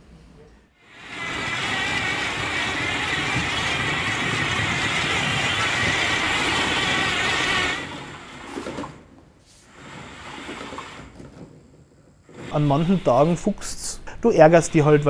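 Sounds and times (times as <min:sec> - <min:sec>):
robot motors and tracks running: 0:00.8 - 0:09.1, 0:09.7 - 0:15.0.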